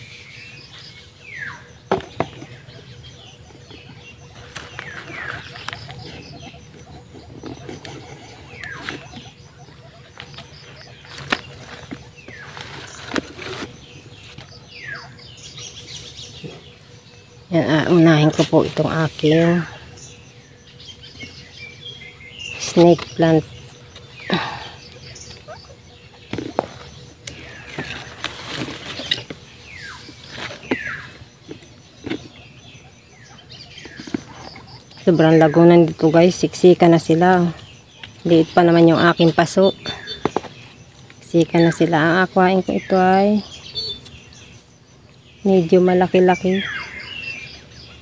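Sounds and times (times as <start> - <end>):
faint high chirping: 0.0 - 48.0
plant leaves and plastic bag rustling: 10.1 - 14.6, 26.3 - 32.4.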